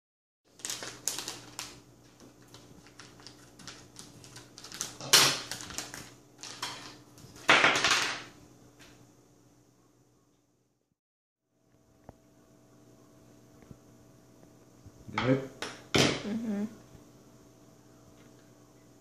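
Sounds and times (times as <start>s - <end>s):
plastic bag crinkling: 0.5s - 7.0s.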